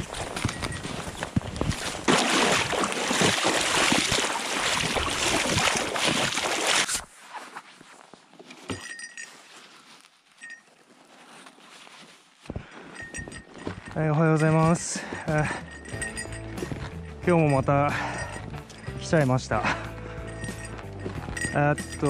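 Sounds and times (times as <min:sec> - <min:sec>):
boots splashing through river: 0:00.0 - 0:07.1
footsteps crunching through snow: 0:00.0 - 0:22.0.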